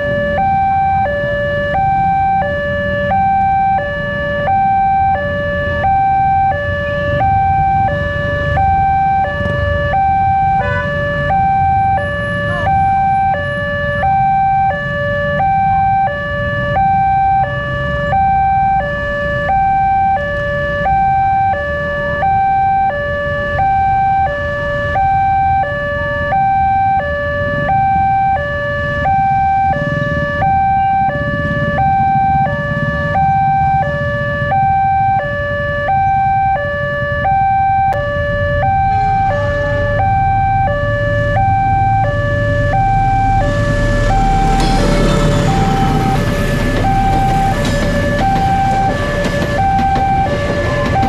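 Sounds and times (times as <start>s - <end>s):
level-crossing two-tone alarm: 0.0s - 51.0s
diesel locomotive rumble: 23.0s - 51.0s.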